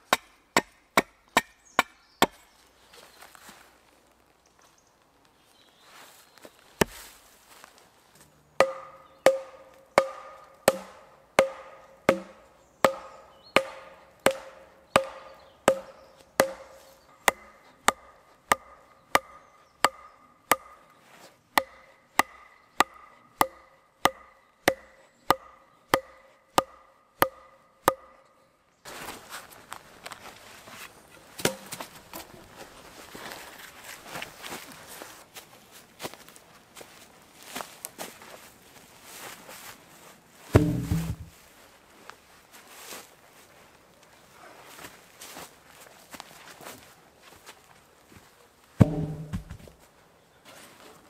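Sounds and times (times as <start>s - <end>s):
wooden stake being hammered: 0.0s - 2.4s, 8.6s - 28.3s, 31.4s - 31.8s, 40.5s - 41.3s, 48.8s - 49.8s.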